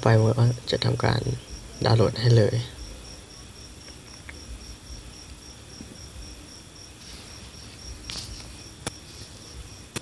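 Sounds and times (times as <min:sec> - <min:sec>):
background hiss: 0:00.0 - 0:10.0
short rustle: 0:07.0 - 0:09.6.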